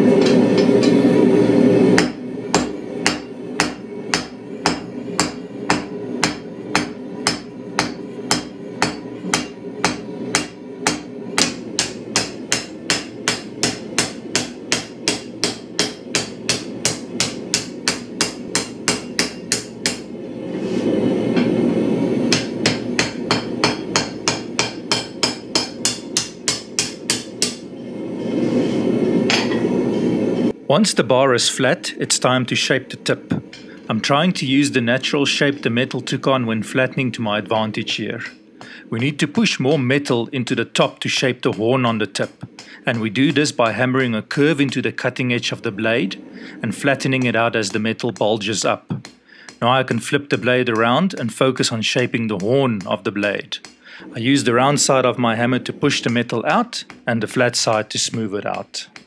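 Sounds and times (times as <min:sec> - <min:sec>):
hammer blows on hot steel: 0:00.0 - 0:30.6, 0:41.2 - 0:45.6, 0:46.4 - 0:59.0
steady low noise: 0:54.1 - 0:58.8.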